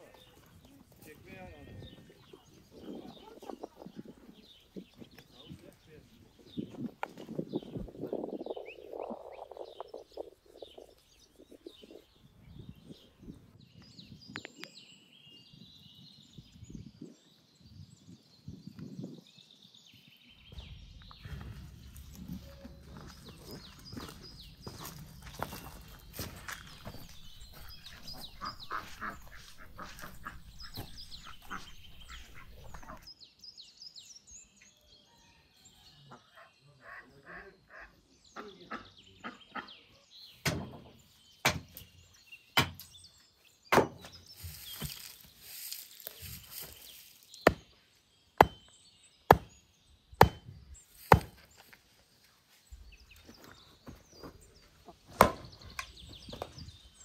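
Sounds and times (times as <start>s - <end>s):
axe splitting firewood: 43.7s - 44.1s, 47.4s - 47.7s, 48.4s - 48.7s, 49.3s - 49.6s, 50.2s - 51.4s, 55.1s - 55.5s.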